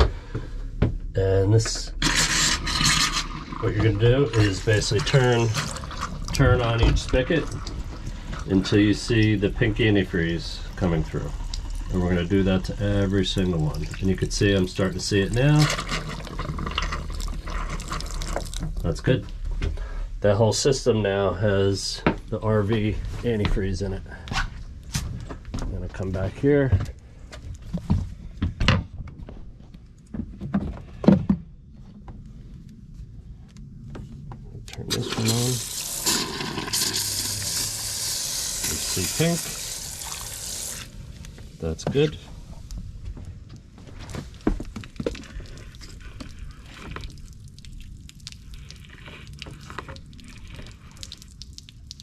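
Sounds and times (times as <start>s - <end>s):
low steady rumble: 3.5s - 35.8s.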